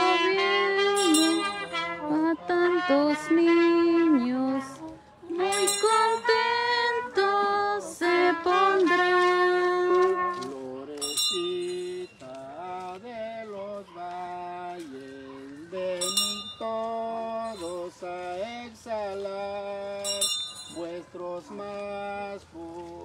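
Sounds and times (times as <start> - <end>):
hymn melody: 0.0 - 23.0
bright metallic clink: 0.9 - 1.8, 5.4 - 6.5, 11.0 - 12.2, 16.0 - 16.8, 20.0 - 21.0.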